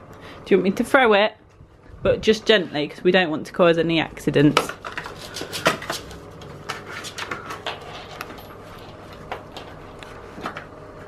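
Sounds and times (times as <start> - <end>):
dog claws scrabbling on floor: 4.6 - 10.6.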